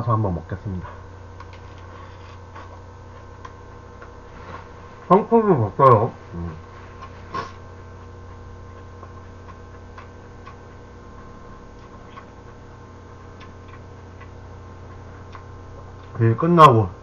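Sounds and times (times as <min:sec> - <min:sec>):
low electrical hum: 0:00.0 - 0:17.0
mouth chewing clicks: 0:09.0 - 0:10.6, 0:13.2 - 0:16.2.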